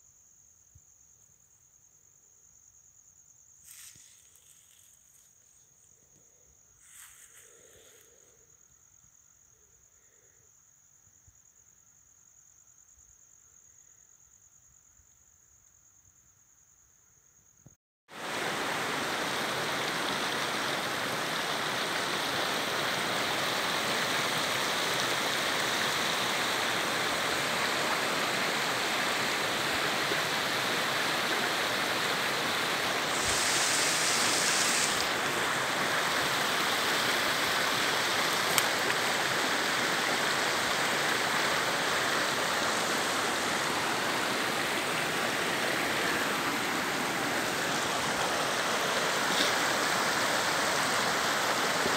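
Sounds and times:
stream running over rocks: 0:18.1 - 0:51.9.

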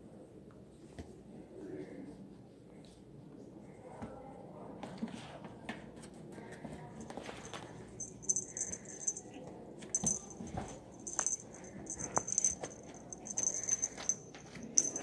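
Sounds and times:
small bell jingling: 0:07.2 - 0:15.0.

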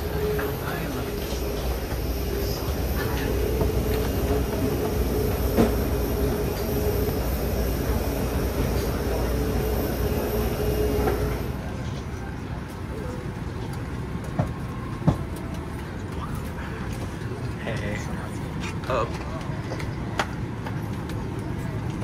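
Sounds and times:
airliner machinery hum: 0:00.0 - 0:22.0.

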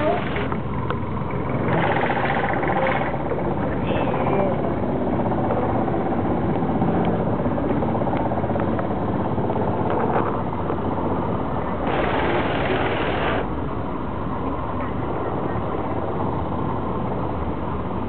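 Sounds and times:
boat engine running: 0:00.0 - 0:18.0
rushing hiss: 0:11.8 - 0:13.5.

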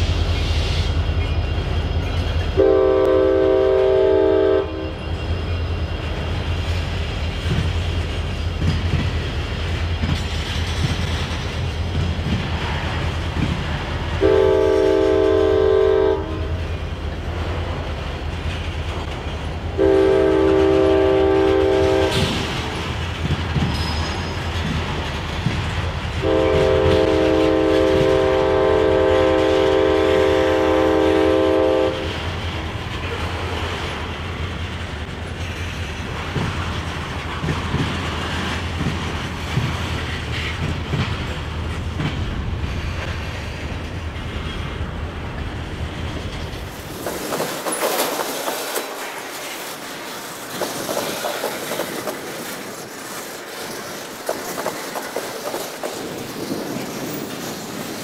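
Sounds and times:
freight train rumble and clatter: 0:00.0 - 0:58.0
locomotive horn blasts: 0:02.6 - 0:05.0, 0:14.2 - 0:16.6, 0:19.8 - 0:22.3, 0:26.2 - 0:32.2.

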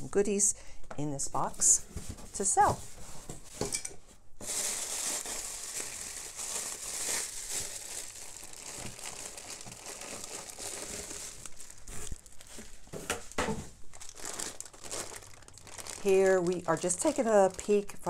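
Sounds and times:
tissue paper and plastic crinkling: 0:04.4 - 0:18.0.

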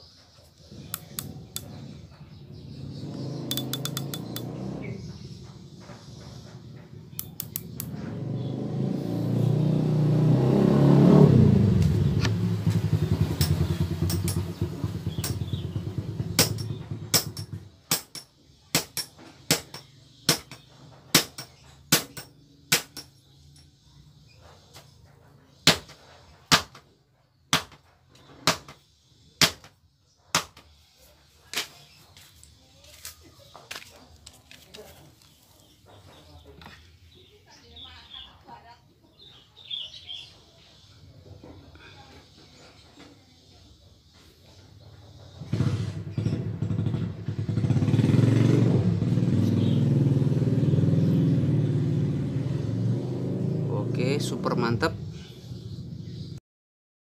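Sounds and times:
passing vehicle engine rumbling: 0:00.6 - 0:17.9, 0:44.2 - 0:56.4
sharp hard knocks: 0:16.3 - 0:23.2, 0:25.6 - 0:26.9, 0:27.5 - 0:28.8, 0:29.4 - 0:30.7.

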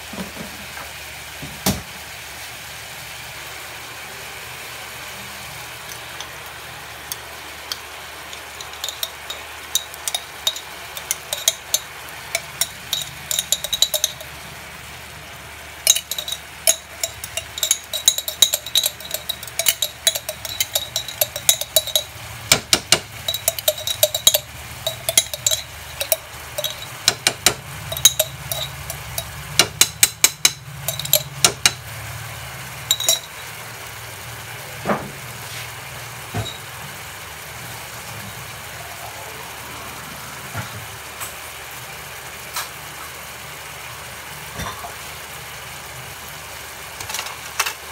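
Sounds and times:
metal spoon clinking on glass jar: 0:07.7 - 0:14.4, 0:15.8 - 0:31.8, 0:32.9 - 0:33.4.

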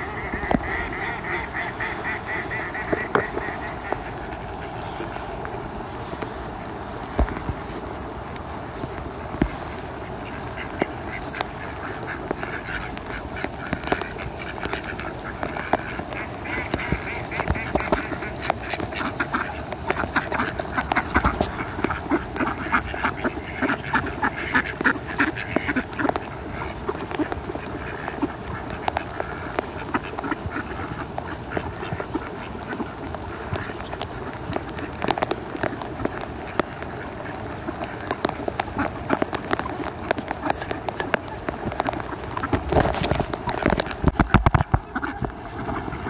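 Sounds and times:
ducks quacking: 0:00.0 - 0:07.4, 0:08.0 - 0:46.0.

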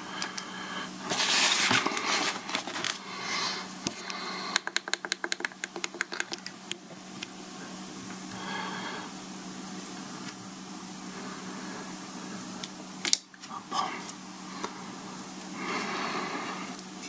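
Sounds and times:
box rustling and scraping on desk: 0:01.1 - 0:03.0.

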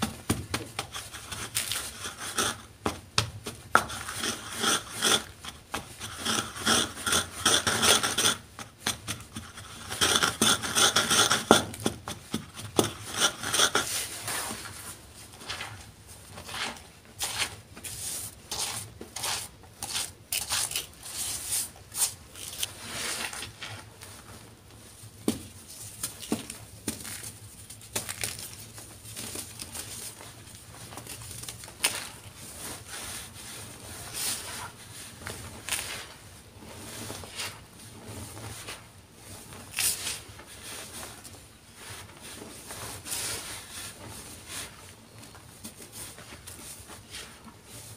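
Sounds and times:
pestle grinding chalk in mortar: 0:00.3 - 0:14.5, 0:16.4 - 0:23.7
chalk crunching under fingers: 0:16.4 - 0:23.8.

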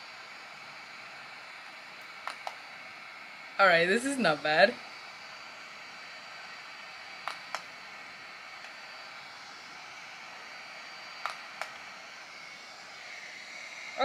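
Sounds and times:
hair-removal device fan hiss: 0:00.0 - 0:14.0
sharp device clicks: 0:02.2 - 0:02.6, 0:07.2 - 0:07.7, 0:11.2 - 0:11.8.

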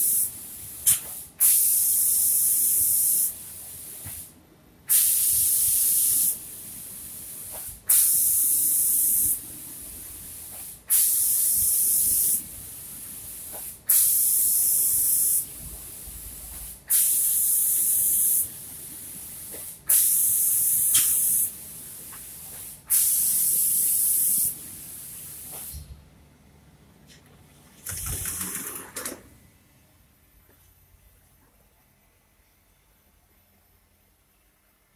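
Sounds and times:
spray gun hissing: 0:00.0 - 0:04.3, 0:04.9 - 0:25.9.

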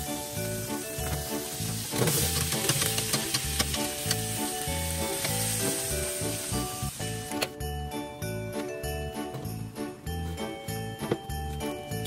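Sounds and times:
fat sizzling: 0:00.0 - 0:07.2
vegetables clattering onto tray: 0:01.9 - 0:03.9.

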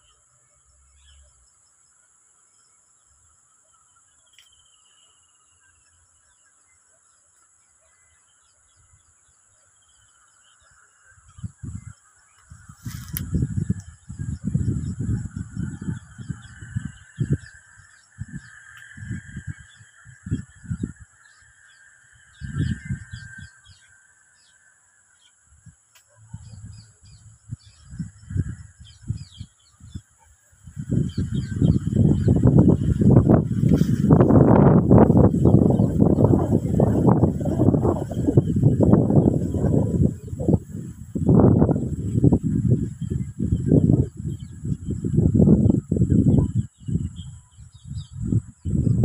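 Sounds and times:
high insect drone: 0:00.0 - 0:49.0
small birds chirping: 0:00.0 - 0:49.0
low rumbles on microphone: 0:12.5 - 0:17.5, 0:26.2 - 0:30.0, 0:30.7 - 0:49.0.

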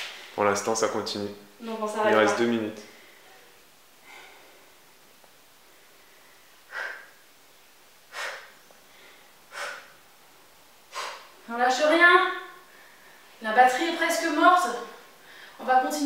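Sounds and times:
woman breathing hard: 0:05.7 - 0:07.3, 0:08.0 - 0:10.0, 0:10.9 - 0:11.4.

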